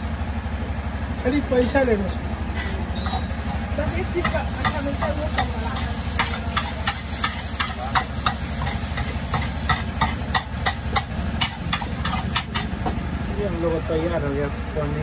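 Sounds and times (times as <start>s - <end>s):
light sizzle: 0.0s - 14.8s
metal spatula clinking on griddle: 4.0s - 12.8s.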